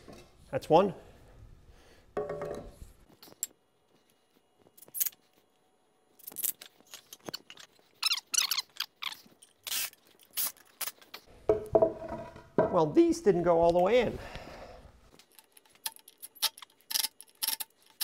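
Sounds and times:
wooden boards knocking and scraping: 0:11.5 - 0:12.8.

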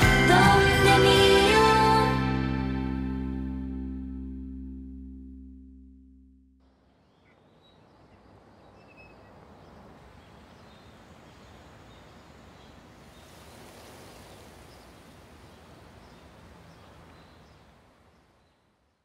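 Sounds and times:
high bird chirps: 0:06.8 - 0:12.8
steady hiss of air: 0:13.0 - 0:15.0.

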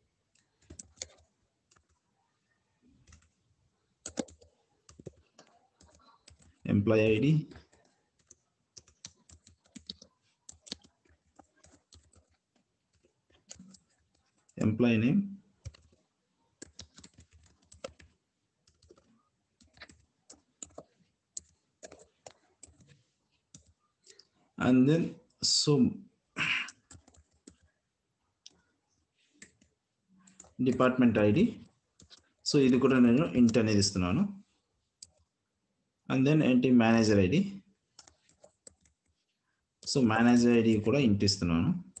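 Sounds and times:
keyboard keys clicking: 0:00.3 - 0:02.0, 0:04.0 - 0:06.6, 0:07.6 - 0:14.2, 0:15.6 - 0:16.0, 0:16.6 - 0:24.2.

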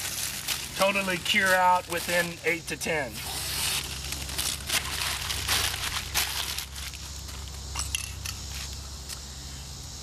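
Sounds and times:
masking tape crinkling: 0:00.0 - 0:09.2.

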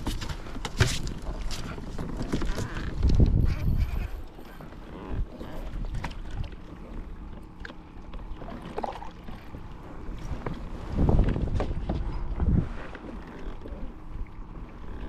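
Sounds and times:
wind on microphone: 0:01.6 - 0:06.5, 0:10.0 - 0:15.0.

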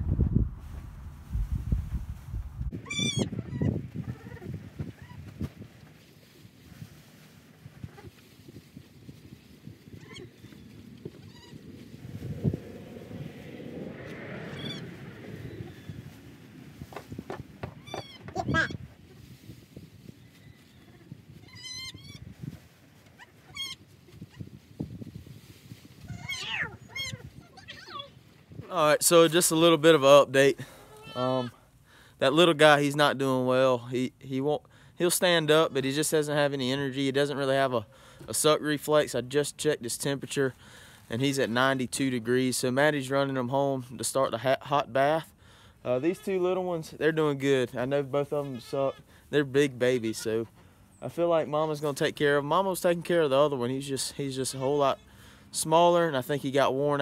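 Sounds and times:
straw rustling: 0:05.2 - 0:21.4
goat kid bleating: 0:17.8 - 0:18.8, 0:26.1 - 0:28.2, 0:30.8 - 0:31.6
goat kids bleating: 0:30.8 - 0:31.6.

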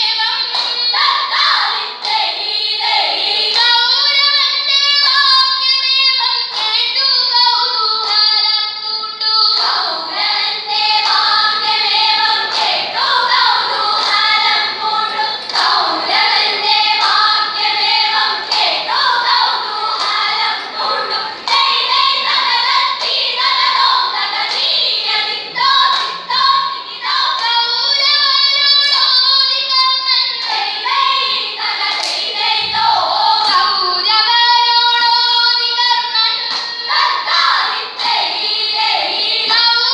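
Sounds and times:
girls singing in chorus: 0:00.0 - 0:39.9
sharp hand claps: 0:00.4 - 0:02.3, 0:06.4 - 0:07.0, 0:08.0 - 0:08.4, 0:09.5 - 0:09.9, 0:11.0 - 0:14.6, 0:15.4 - 0:24.8, 0:25.8 - 0:26.2, 0:30.3 - 0:30.7, 0:31.8 - 0:32.3, 0:36.4 - 0:38.3.

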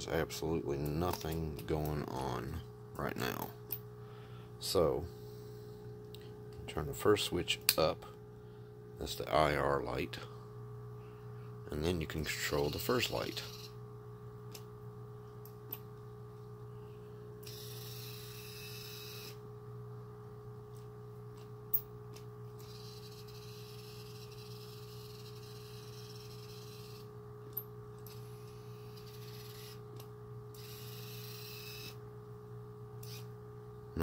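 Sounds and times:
electrical hum: 0:00.0 - 0:34.0
motor whirring: 0:17.4 - 0:19.4, 0:28.0 - 0:29.8, 0:30.6 - 0:32.0.

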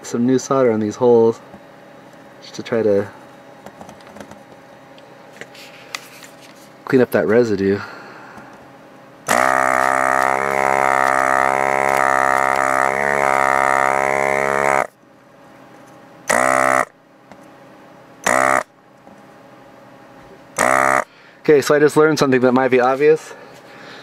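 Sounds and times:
vacuum pump buzzing: 0:09.2 - 0:15.0, 0:16.2 - 0:17.4, 0:18.2 - 0:18.8, 0:20.2 - 0:21.3.

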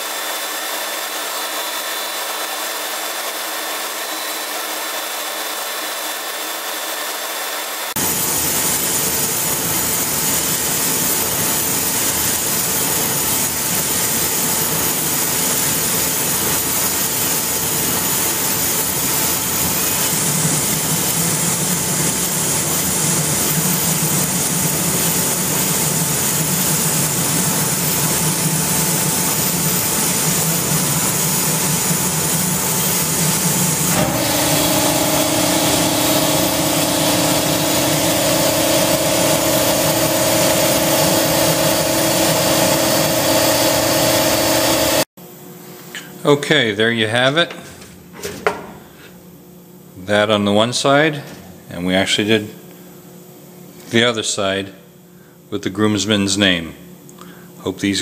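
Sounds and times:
laser engraver running: 0:00.1 - 0:45.1.

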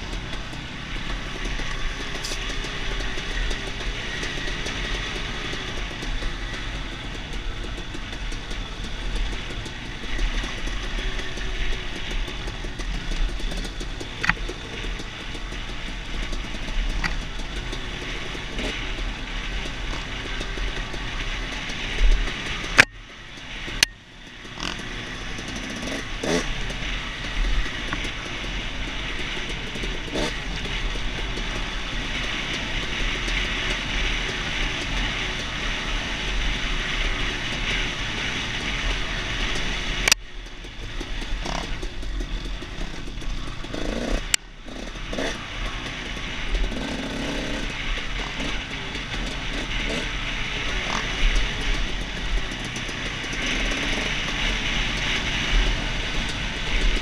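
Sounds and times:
dirt bike engine running: 0:00.0 - 0:57.0.

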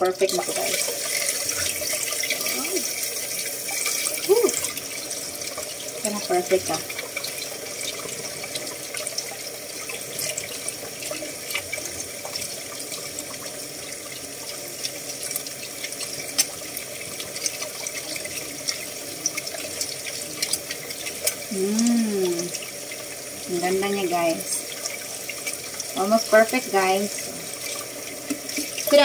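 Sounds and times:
tap water running into pot: 0:00.0 - 0:29.0
person humming: 0:21.5 - 0:22.5.

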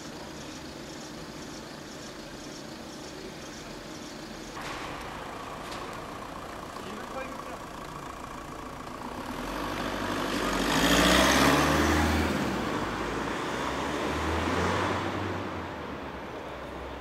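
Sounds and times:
car engine accelerating: 0:04.5 - 0:15.8.

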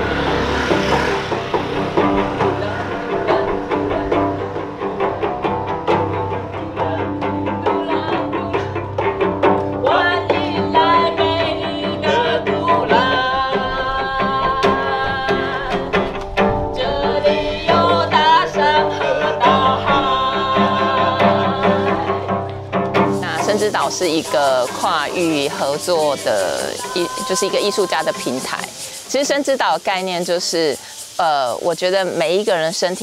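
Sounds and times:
person singing long notes: 0:00.0 - 0:09.0, 0:09.7 - 0:22.6, 0:23.2 - 0:29.0
acoustic guitar strumming: 0:00.0 - 0:29.8.

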